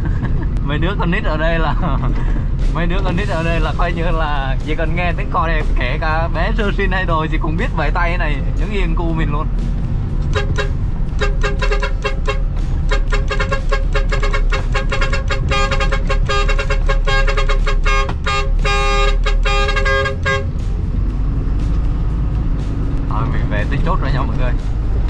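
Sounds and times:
truck engine running low: 0:00.0 - 0:25.0
truck horn rhythmic toots: 0:10.1 - 0:20.8.

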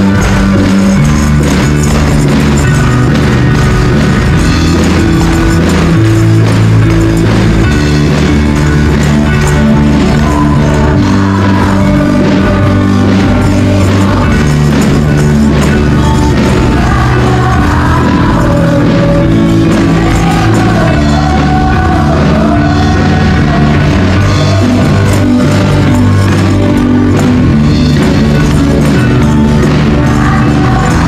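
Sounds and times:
tambourines shaking: 0:00.0 - 0:31.0
singers and choir with band: 0:09.2 - 0:26.8, 0:28.4 - 0:31.0.

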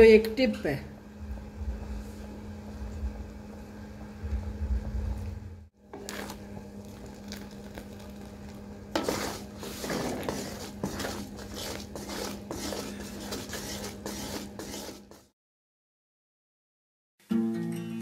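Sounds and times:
low hum: 0:00.8 - 0:08.8
wooden spoon scraping pot: 0:05.9 - 0:15.3.

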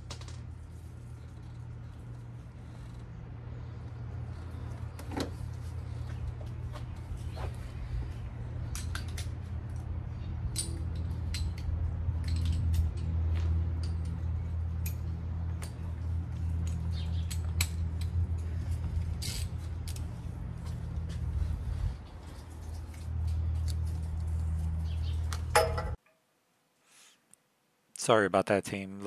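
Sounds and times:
steady low hum: 0:00.0 - 0:26.0
faint metallic clicks and clinks: 0:10.5 - 0:18.5.

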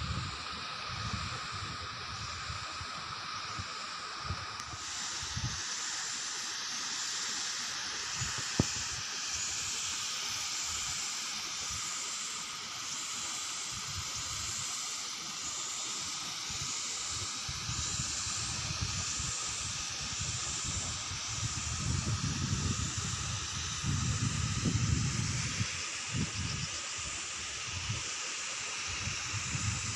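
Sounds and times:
steady high hiss: 0:00.0 - 0:29.9
wind buffeting microphone: 0:20.1 - 0:26.7.

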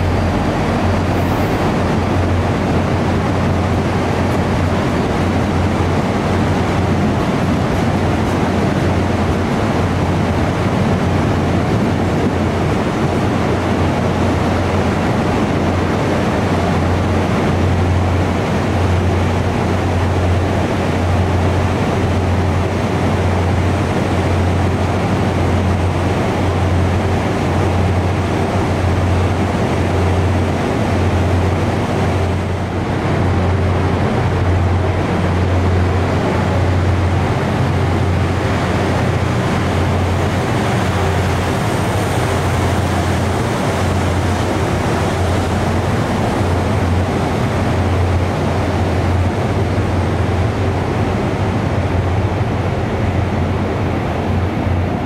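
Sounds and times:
constant hum: 0:00.0 - 0:55.0
diesel locomotive engine throbbing: 0:00.0 - 0:55.0.

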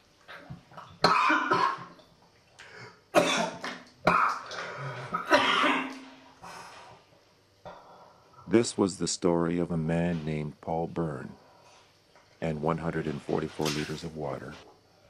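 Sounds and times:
man coughing: 0:01.0 - 0:01.9, 0:03.1 - 0:04.4, 0:05.0 - 0:06.0.

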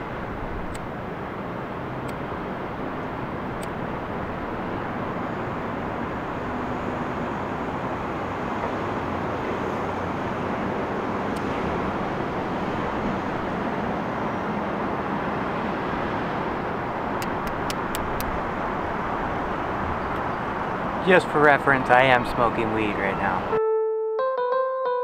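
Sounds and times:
city traffic rumble: 0:00.0 - 0:23.6
sharp click: 0:17.2 - 0:18.3.

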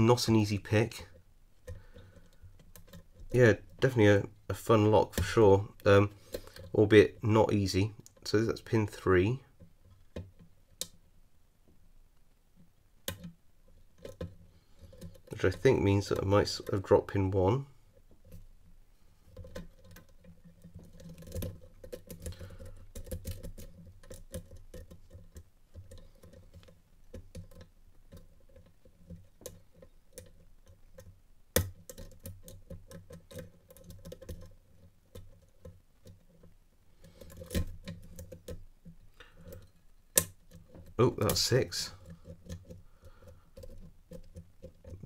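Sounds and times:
lock pick ticking and scraping: 0:00.8 - 0:04.0, 0:13.0 - 0:17.0, 0:19.3 - 0:45.0.

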